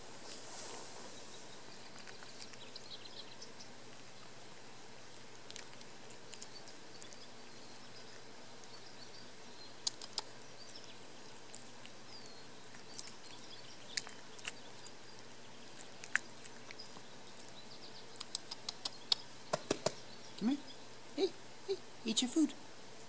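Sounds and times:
cat chewing and licking: 0:01.6 - 0:19.2.

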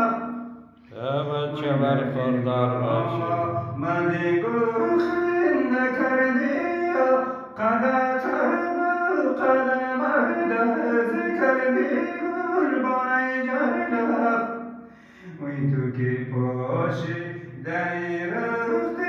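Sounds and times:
man singing long wavering notes: 0:00.0 - 0:14.4.

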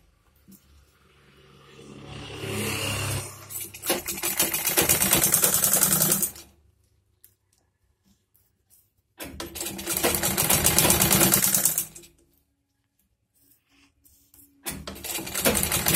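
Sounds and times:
sewing machine stitching: 0:02.4 - 0:06.5, 0:09.2 - 0:12.1, 0:14.7 - 0:15.9.

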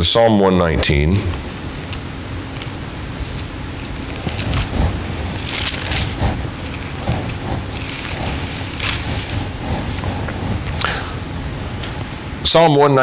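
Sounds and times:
paper pages rustling: 0:01.6 - 0:10.4.

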